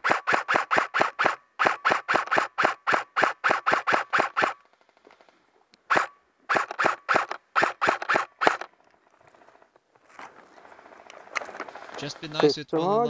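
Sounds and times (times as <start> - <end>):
airsoft rifle shots: 0.0 - 4.6, 5.9 - 8.7.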